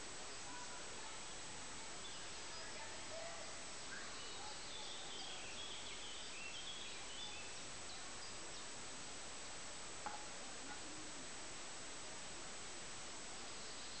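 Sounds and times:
outdoor background hiss: 0:00.0 - 0:14.0
faint bird chirps: 0:00.1 - 0:08.8, 0:13.2 - 0:14.0.

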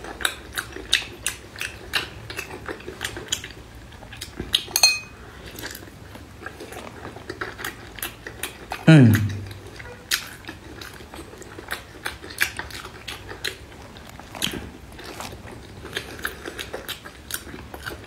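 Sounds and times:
person chewing food: 0:00.0 - 0:18.0
wet mouth sounds: 0:07.3 - 0:10.9.

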